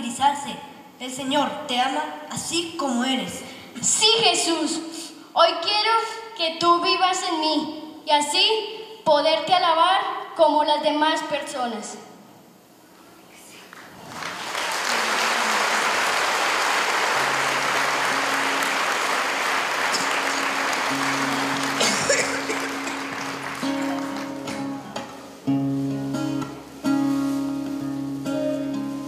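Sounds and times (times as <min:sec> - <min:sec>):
audience applauding: 0:13.8 - 0:25.2
band with held guitar notes: 0:17.1 - 0:29.0.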